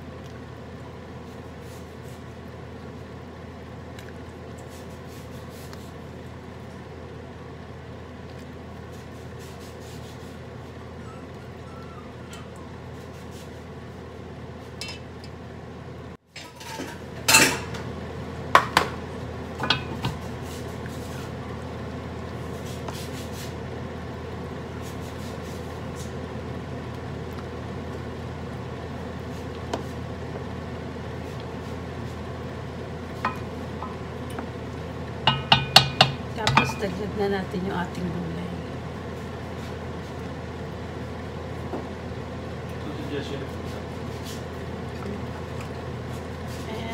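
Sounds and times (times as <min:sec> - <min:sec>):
spoon knocking on metal pot: 0:35.3 - 0:36.9.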